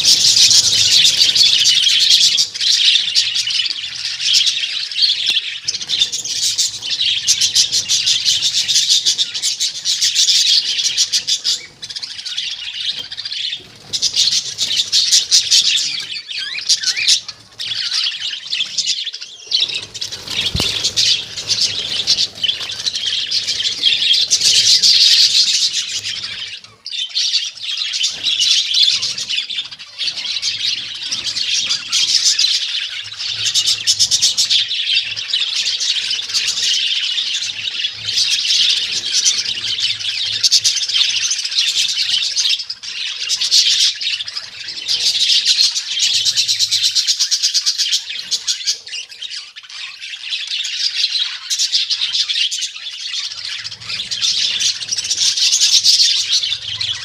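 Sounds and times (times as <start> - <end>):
budgerigars chattering and chirping: 0.0 - 57.0.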